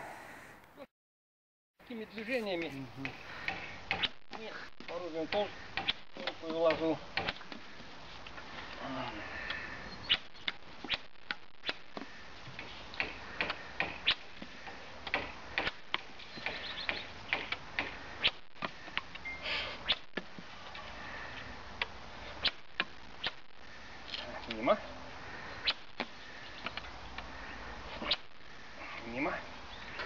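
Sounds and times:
sharp clicks and light knocks: 2.6 - 7.6.

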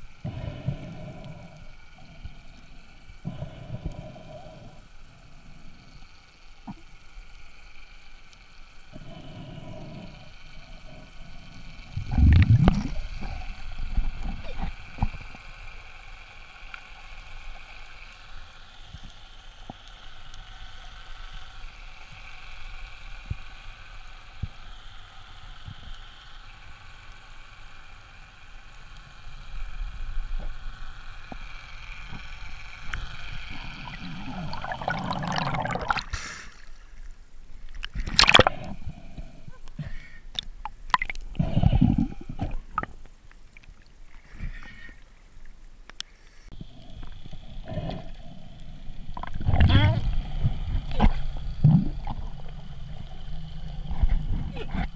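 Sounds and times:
underwater hiss: 0.0 - 54.9
water rushing and splashing: 33.5 - 36.5, 37.8 - 38.8
faint clicks: 42.3 - 54.9.

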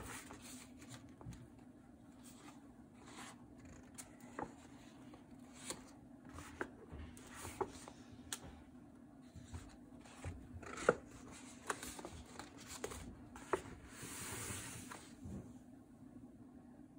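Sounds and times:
paper rustling and crinkling: 0.0 - 1.6, 2.2 - 8.5, 9.2 - 15.2
faint steady hum: 0.0 - 16.9.

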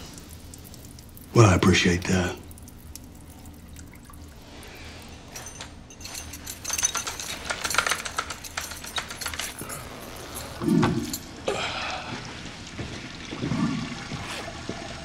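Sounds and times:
metallic clicking and jingling: 4.8 - 11.3.

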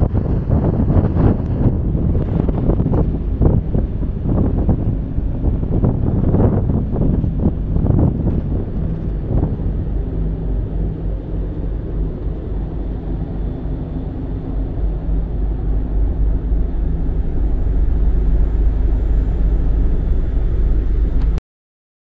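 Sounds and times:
ferry engine rumble and hum: 0.0 - 21.4
wind noise on microphone: 0.0 - 21.4.

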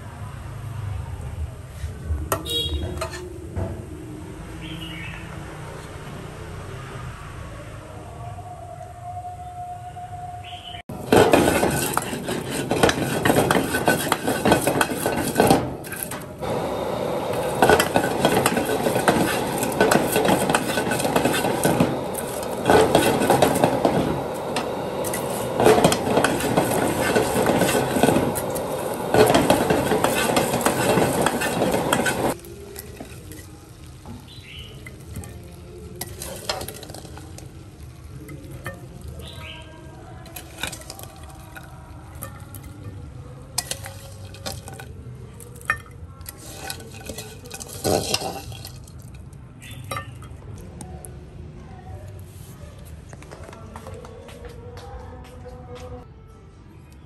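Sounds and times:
food being tossed: 10.9 - 16.6, 17.3 - 42.8, 43.5 - 50.3
food sizzling in a wok: 10.9 - 42.6, 46.3 - 49.0
ladle scraping a wok: 10.9 - 50.3.

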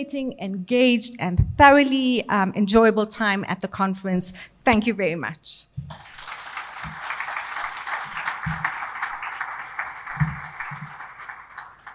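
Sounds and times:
dull low thumps: 1.3 - 1.8
audience applauding: 5.9 - 11.9.

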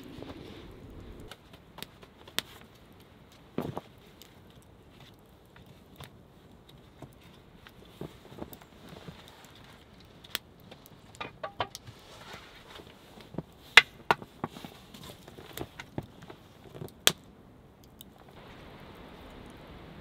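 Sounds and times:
wooden sticks knocking and clicking: 11.1 - 11.8.

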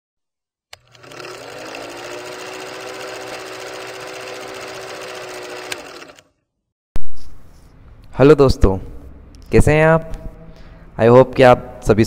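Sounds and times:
film projector clattering: 0.7 - 6.3.

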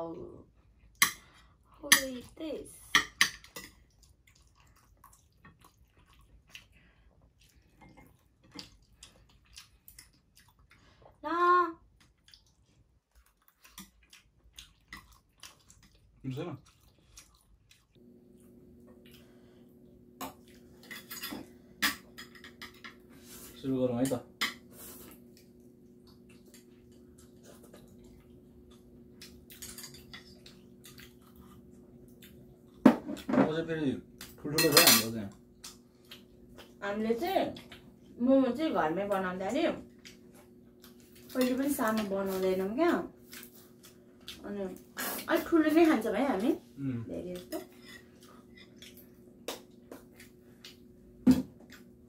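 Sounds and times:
faint steady hum: 0.0 - 52.0
chewing and mouth clicks: 3.7 - 11.1, 11.9 - 18.0, 25.1 - 32.8, 35.3 - 36.8, 37.5 - 38.0, 39.9 - 42.1, 47.4 - 50.9
wet mouth noises eating: 11.9 - 18.0.

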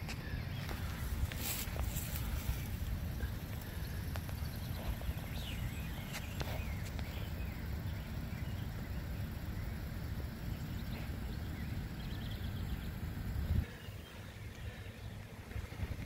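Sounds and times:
bird chirps: 0.0 - 16.0
wind rumble on microphone: 12.6 - 13.8, 15.1 - 16.0.

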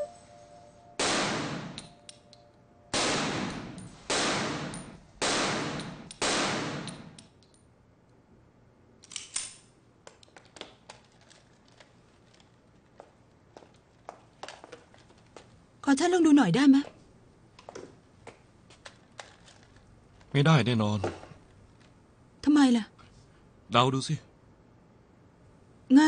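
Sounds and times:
pistol shots echoing: 1.0 - 1.9, 2.9 - 7.2.

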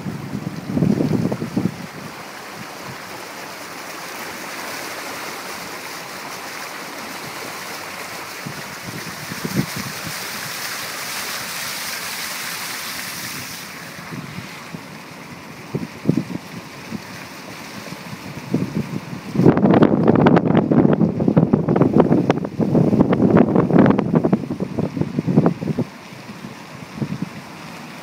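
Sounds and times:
car tyres hissing on wet road: 0.0 - 19.2.

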